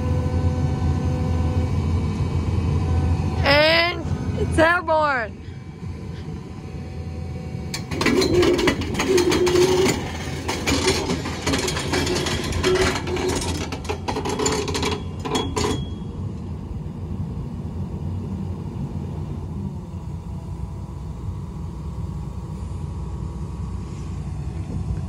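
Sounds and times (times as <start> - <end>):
excavator diesel engine: 0.0 - 25.0
loud rattling clatter: 7.7 - 16.0.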